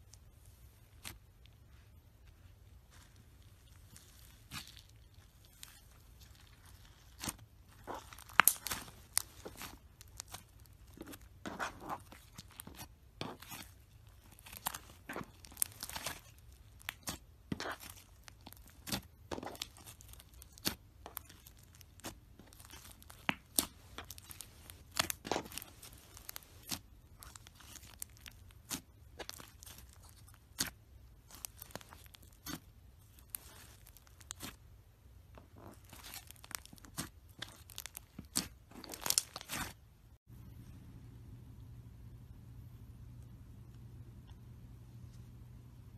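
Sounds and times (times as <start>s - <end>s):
slime popping and crackling: 3.5s - 34.6s, 35.4s - 39.8s.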